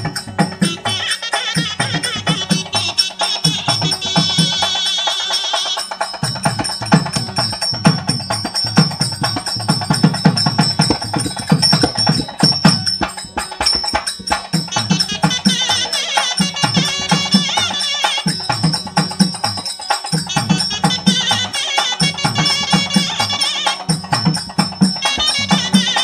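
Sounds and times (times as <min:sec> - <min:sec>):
clicking percussion: 0:00.0 - 0:26.0
fast drum strokes: 0:05.8 - 0:26.0
double-reed pipe melody: 0:10.5 - 0:13.9, 0:14.6 - 0:18.8, 0:20.2 - 0:23.9, 0:25.0 - 0:26.0.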